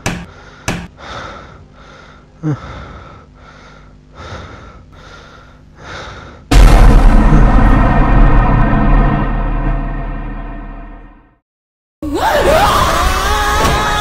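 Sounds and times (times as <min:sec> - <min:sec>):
man panting hard: 0:00.1 - 0:06.5.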